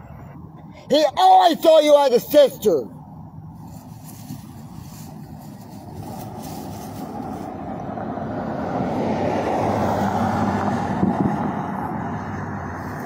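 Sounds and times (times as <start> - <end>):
vehicle driving past: 4.5 - 13.0.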